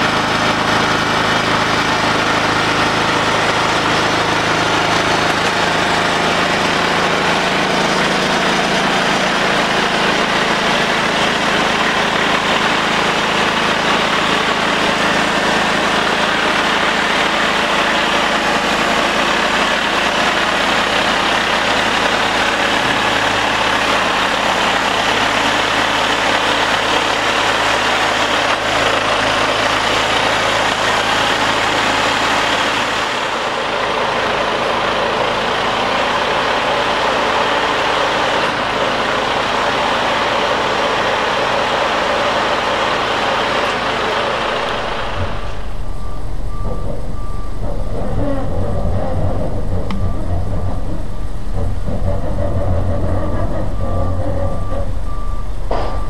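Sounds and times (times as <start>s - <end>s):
diesel truck engine rumble: 0.0s - 56.0s.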